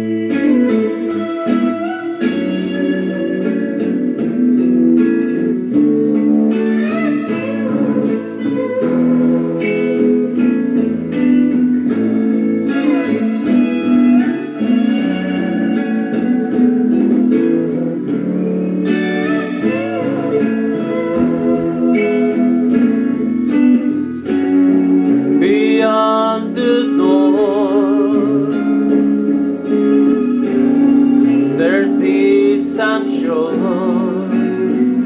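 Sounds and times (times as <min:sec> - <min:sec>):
guitar chordal accompaniment: 0:00.0 - 0:35.0
plucked guitar notes: 0:00.0 - 0:35.0.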